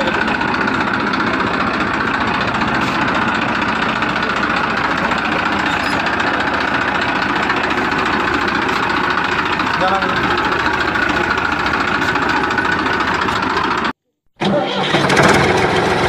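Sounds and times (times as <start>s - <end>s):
small engine chugging: 0.0s - 16.0s.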